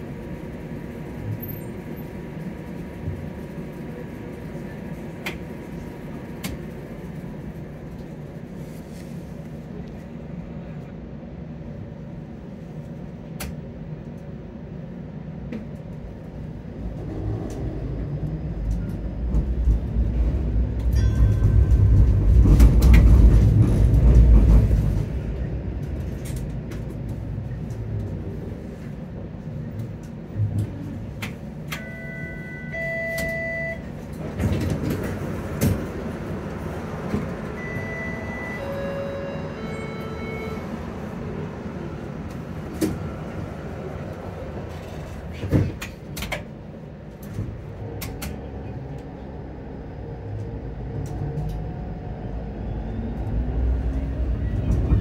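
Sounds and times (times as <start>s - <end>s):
streetcar motors rumbling: 0.0s - 55.0s
steel wheels on rails: 16.8s - 32.2s.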